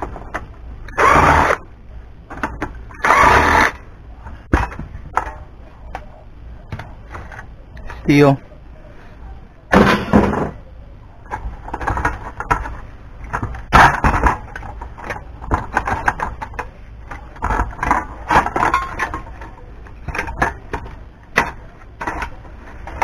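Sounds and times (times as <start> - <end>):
sheet metal parts clattering: 17.4 - 20.8.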